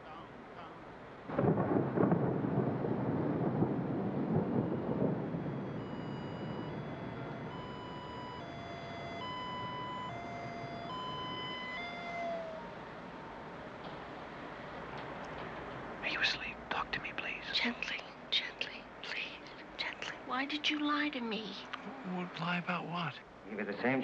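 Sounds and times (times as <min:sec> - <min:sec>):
loud rumble: 0:01.3 - 0:09.1
held tones stepping in pitch: 0:05.8 - 0:12.8.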